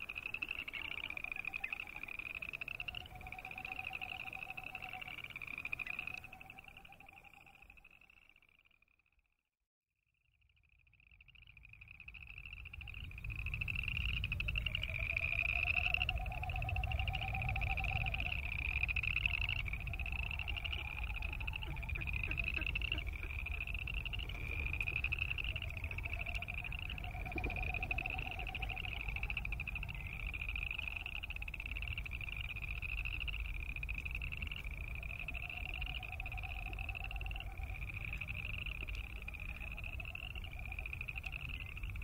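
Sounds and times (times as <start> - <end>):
frogs trilling in chorus: 0.0 - 9.0, 10.4 - 42.0
faint low pulsing sound: 10.0 - 42.0
steady low rumble: 12.2 - 42.0.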